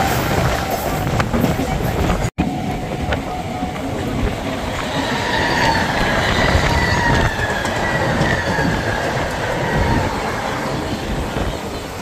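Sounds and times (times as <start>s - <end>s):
train wheels rumbling on rails: 0.0s - 12.0s
high wheel squeal: 2.5s - 11.8s.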